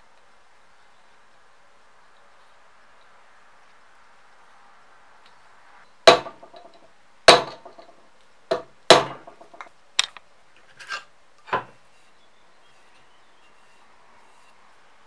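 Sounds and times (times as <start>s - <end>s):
sharp knocks on metal wire: 6.1s - 9.7s.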